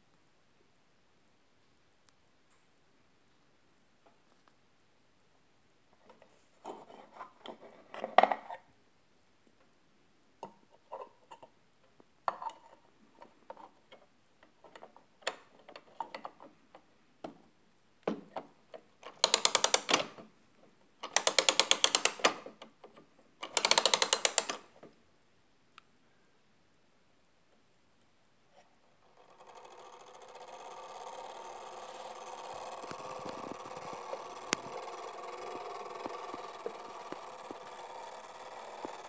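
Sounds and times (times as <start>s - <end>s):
ratchet clicking of spring winding: 19.2s - 20.0s, 21.1s - 22.2s, 23.4s - 24.6s, 29.2s - 39.0s.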